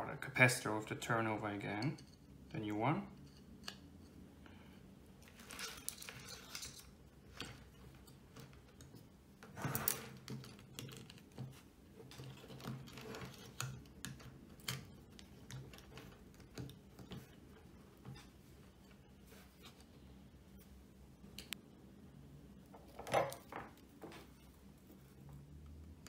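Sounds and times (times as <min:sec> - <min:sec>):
handling rustle: 0:05.2 - 0:20.8
small clicks taps and rattles: 0:10.1 - 0:18.3.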